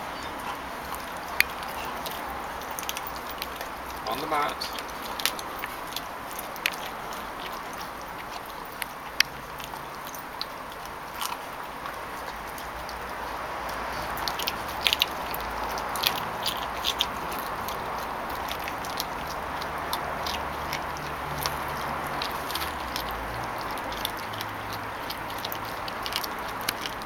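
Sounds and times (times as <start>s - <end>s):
puppy chewing bone: 0.0s - 27.0s
teeth clicking on bone: 0.0s - 27.0s.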